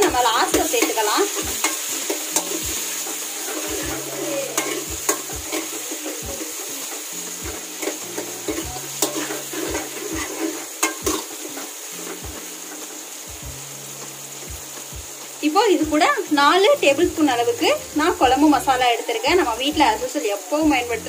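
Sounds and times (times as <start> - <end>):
metal spoon scraping a pan: 0.0 - 13.0
masala sizzling in oil: 0.0 - 21.0
spoon knocking on pan: 7.8 - 11.3.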